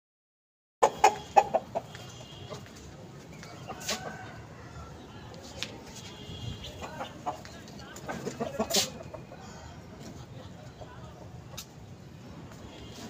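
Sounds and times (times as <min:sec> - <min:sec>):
poultry clucking: 0:00.8 - 0:05.0, 0:06.6 - 0:11.8.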